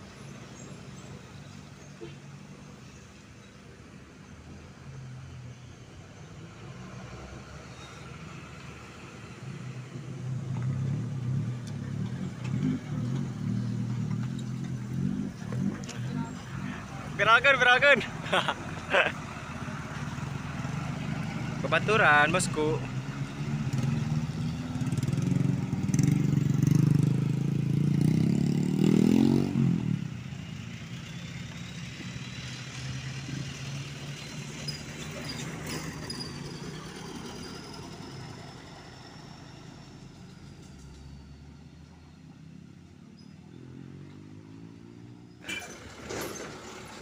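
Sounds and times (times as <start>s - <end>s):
passing traffic: 0.0s - 47.0s
truck diesel engine passing: 0.0s - 47.0s
engine revving: 8.7s - 38.3s.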